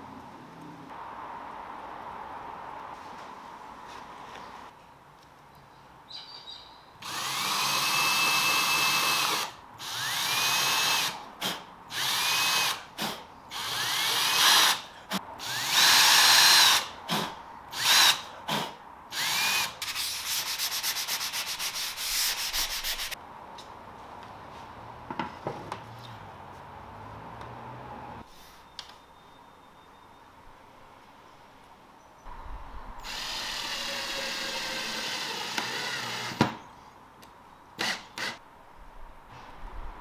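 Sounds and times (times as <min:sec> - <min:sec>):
cordless drill whining: 0:33.0 - 0:36.4.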